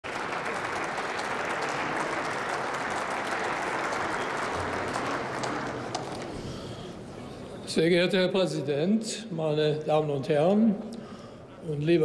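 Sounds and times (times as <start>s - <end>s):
group applause: 0.0s - 6.3s.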